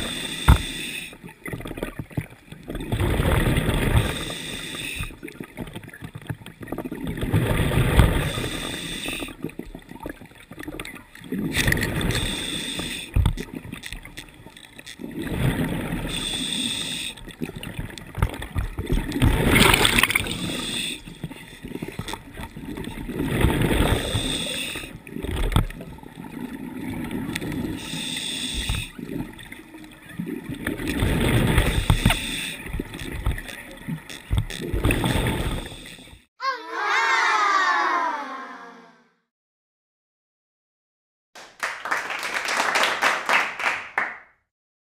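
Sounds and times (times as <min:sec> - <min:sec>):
regulator hiss on inhale: 0:00.0 - 0:01.2, 0:04.0 - 0:05.1, 0:08.3 - 0:09.4, 0:12.1 - 0:13.2, 0:16.0 - 0:17.2, 0:20.2 - 0:21.2, 0:24.0 - 0:24.9, 0:27.8 - 0:28.9, 0:31.7 - 0:32.6, 0:35.5 - 0:36.2
bubbly gurgling exhaled air: 0:18.7 - 0:21.0.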